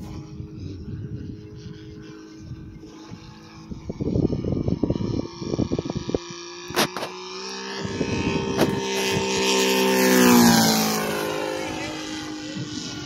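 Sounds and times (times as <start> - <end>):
low rumbles on microphone: 0.0 - 7.0
model airplane engine drone: 0.0 - 13.0.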